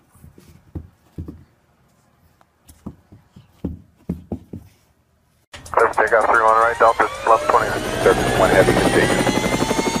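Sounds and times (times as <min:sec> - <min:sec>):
person's voice: 0:05.7 - 0:09.3.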